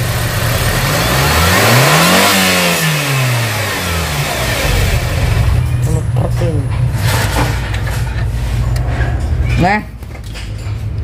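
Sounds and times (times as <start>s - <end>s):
car engine revving: 0.0s - 6.0s
car engine idling: 0.0s - 8.0s.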